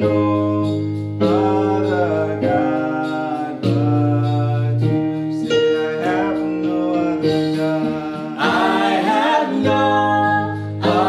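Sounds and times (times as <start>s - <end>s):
instrumental accompaniment: 0.0s - 11.0s
vocal group singing: 5.5s - 11.0s.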